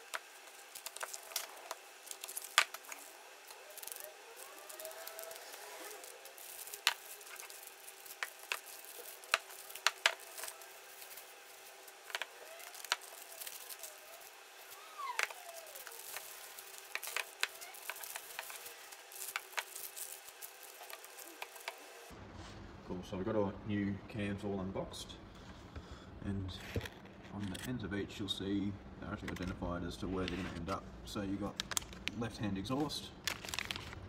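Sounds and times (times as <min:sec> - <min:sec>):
plastic and paper crinkling: 0:00.0 - 0:22.1, 0:31.4 - 0:34.0
sharp crackles: 0:00.0 - 0:22.1.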